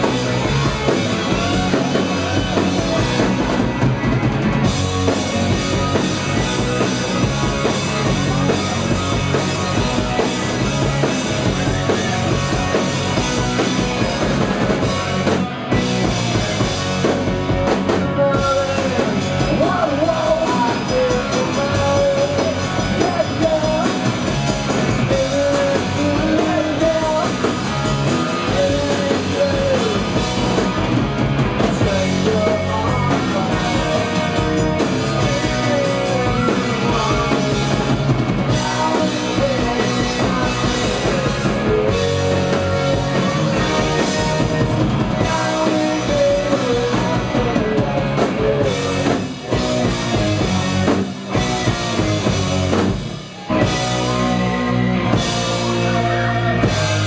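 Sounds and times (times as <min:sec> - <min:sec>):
rock band playing: 0:00.0 - 0:57.0
man singing: 0:17.8 - 0:30.7, 0:31.6 - 0:49.3.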